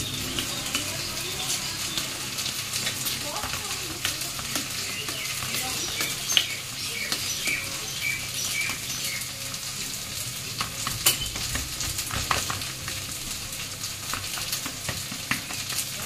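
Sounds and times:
crackling hiss: 0.0s - 16.0s.

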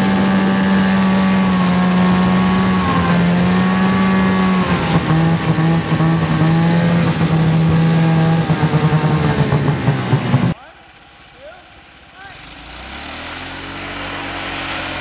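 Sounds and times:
snowmobile engine running: 0.0s - 10.6s.

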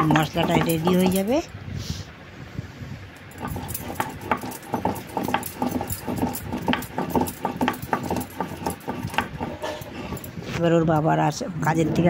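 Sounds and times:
stone pestle grinding on stone: 0.0s - 1.4s, 3.3s - 10.5s.

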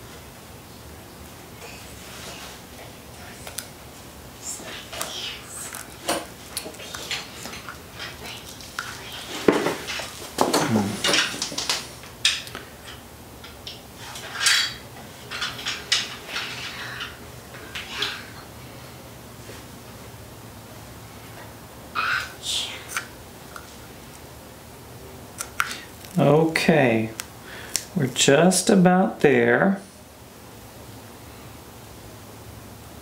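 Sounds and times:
knocks and rustles: 5.7s - 18.4s
tape peeling and crinkling: 25.4s - 26.3s.

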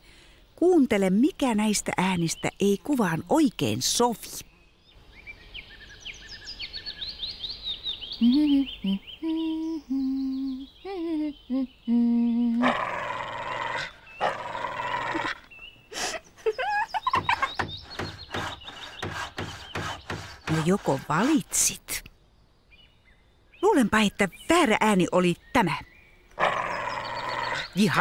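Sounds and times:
small birds chirping: 0.0s - 28.0s
dog snarling and barking: 12.6s - 15.4s, 26.4s - 28.0s.

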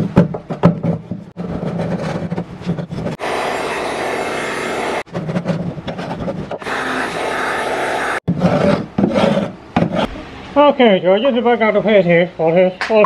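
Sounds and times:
heat gun blowing hot air: 3.2s - 5.1s, 6.6s - 8.3s.

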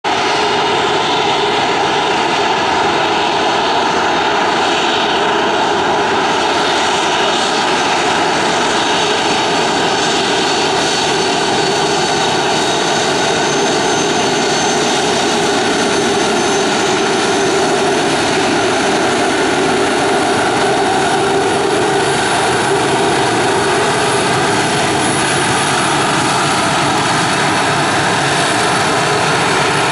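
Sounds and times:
jet engines whining: 0.0s - 29.9s.

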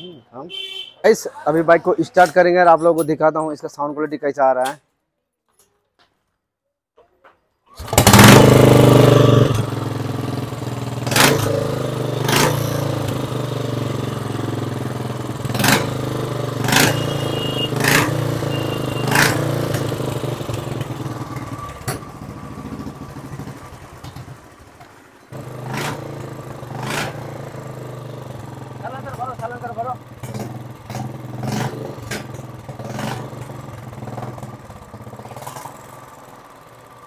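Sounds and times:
single-cylinder engine idling: 18.3s - 26.7s, 33.4s - 37.0s.

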